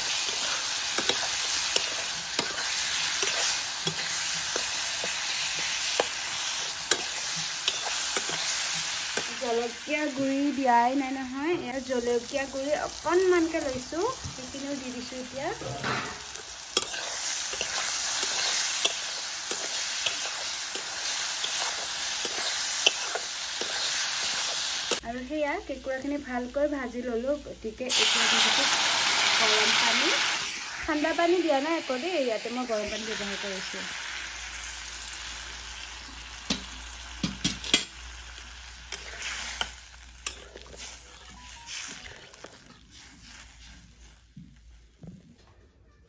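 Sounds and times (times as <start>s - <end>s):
steel spatula scraping a pan: 0.0s - 9.3s, 15.2s - 25.0s, 38.9s - 44.2s
potatoes sizzling in a pan: 0.0s - 44.4s.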